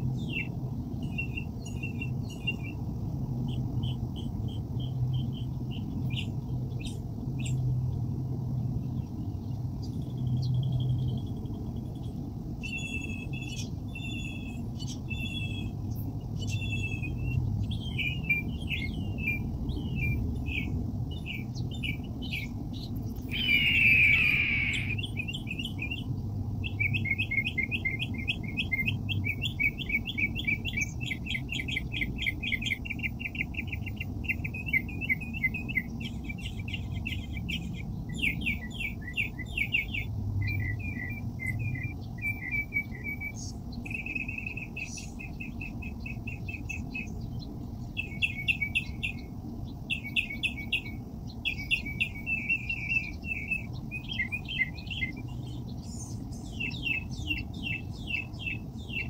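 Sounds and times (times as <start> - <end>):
songbird trilling: 16.4 - 47.2, 47.9 - 49.3, 49.9 - 59.0
steady low rumble: 18.4 - 26.7.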